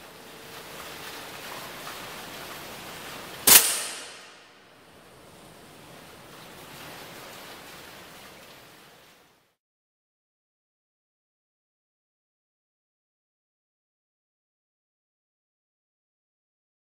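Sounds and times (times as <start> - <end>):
steady background hiss: 0.0 - 9.6
air rifle shot: 3.5 - 4.6.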